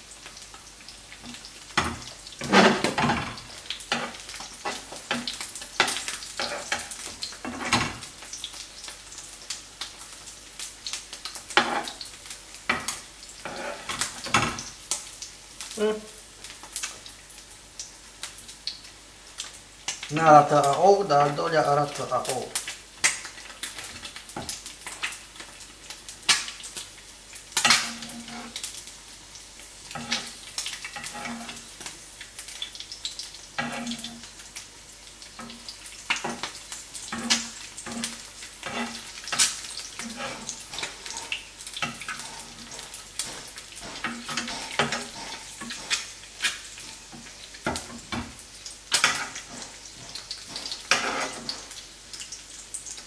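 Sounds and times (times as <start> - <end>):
eggs sizzling in frying pan: 0.0 - 53.0
metal spoon scraping pan: 6.4 - 6.9, 13.4 - 14.1, 27.6 - 28.6, 29.9 - 31.6, 33.6 - 34.2, 37.1 - 47.0, 48.9 - 51.7.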